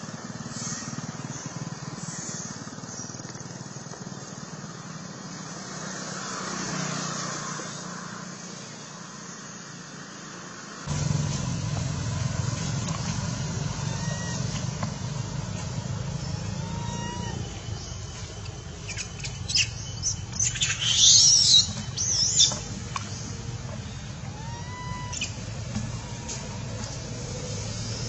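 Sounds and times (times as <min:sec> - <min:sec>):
steady low hum: 0:10.9 - 0:20.8
animal high-pitched squealing: 0:13.8 - 0:14.6, 0:16.2 - 0:17.5, 0:24.3 - 0:25.4.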